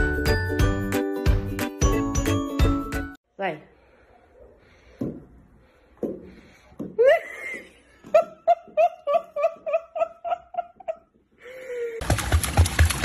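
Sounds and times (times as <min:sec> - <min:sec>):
person giggling: 0:07.0 - 0:12.0.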